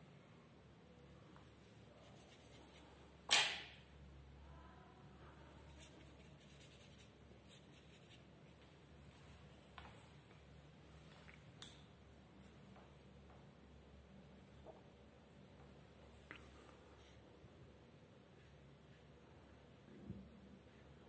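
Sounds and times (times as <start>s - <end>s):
brush scratching on paper: 2.0s - 3.0s, 5.6s - 8.3s.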